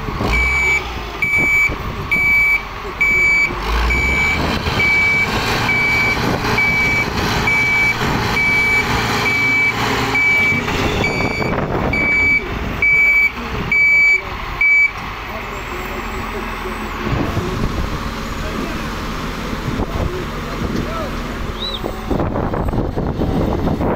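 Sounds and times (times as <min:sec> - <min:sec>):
diesel engines rumbling: 0:00.0 - 0:23.9
backup alarm beeping: 0:00.4 - 0:15.0.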